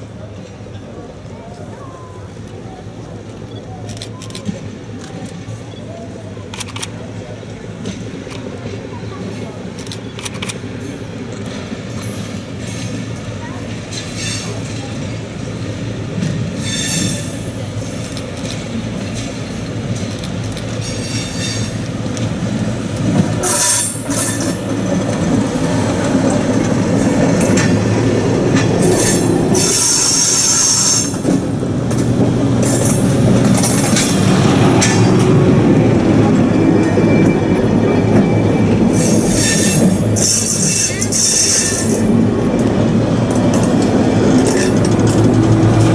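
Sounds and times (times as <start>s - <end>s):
diesel railcar engine rumble: 0.0s - 45.9s
train wheels squealing: 16.6s - 17.5s, 20.8s - 21.8s, 28.8s - 31.2s, 36.5s - 42.1s.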